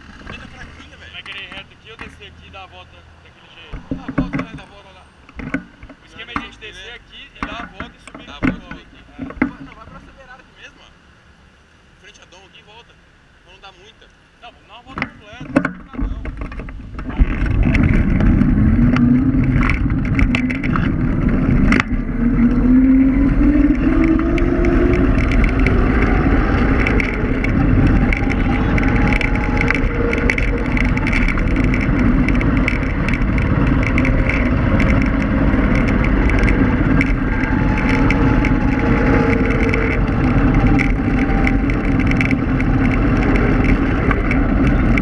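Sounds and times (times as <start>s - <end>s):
scooter tyres rumbling on asphalt: 0.0s - 10.4s, 14.7s - 45.0s
sharp rattles: 14.8s - 45.0s
wind on microphone: 15.9s - 45.0s
electric motor whine: 17.4s - 45.0s.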